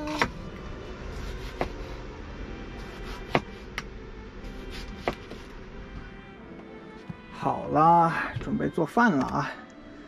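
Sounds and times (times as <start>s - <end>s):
cleaver slicing tomatoes: 0.0s - 0.4s, 1.1s - 1.9s, 2.8s - 3.8s, 4.5s - 5.4s.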